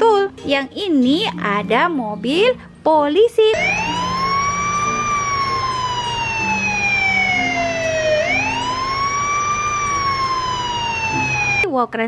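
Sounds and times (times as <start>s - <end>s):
police siren wailing: 3.5s - 11.7s.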